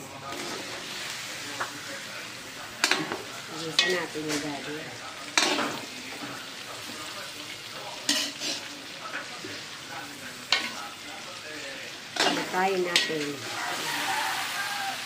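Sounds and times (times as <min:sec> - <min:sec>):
leaves sizzling in a pan: 0:00.0 - 0:15.0.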